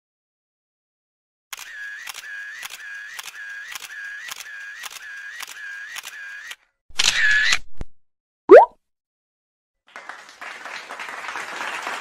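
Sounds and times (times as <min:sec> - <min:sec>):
shutter motor whir: 0:01.5 - 0:07.7
camera shutter clicks: 0:01.6 - 0:07.6.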